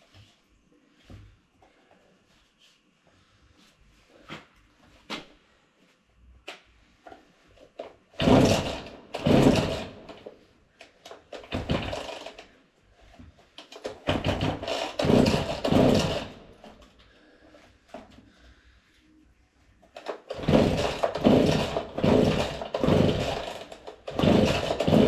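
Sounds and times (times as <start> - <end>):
chainsaw starter cord pulls: 8.2 - 10.3, 11.1 - 12.5, 13.6 - 16.8, 19.9 - 25.0.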